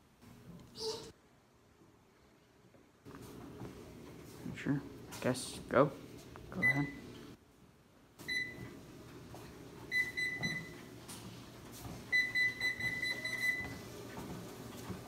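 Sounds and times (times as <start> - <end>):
treadmill console beeping: 6.6 - 7.1, 8.2 - 15.0.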